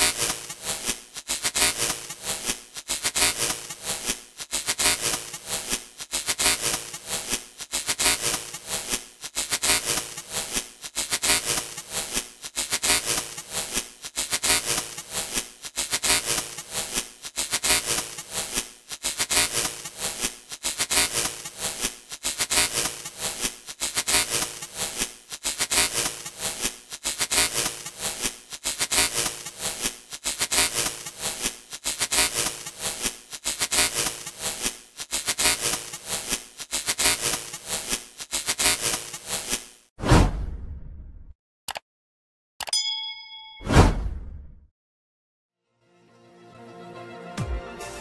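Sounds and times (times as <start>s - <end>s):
electronic glitch static crackling: 35.2s - 39.7s.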